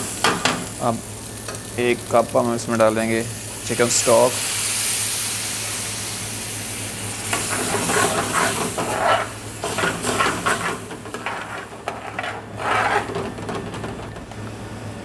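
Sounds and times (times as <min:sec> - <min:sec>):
hot liquid sizzling: 0:00.0 - 0:14.0
metal ladle scraping pan: 0:07.3 - 0:14.1.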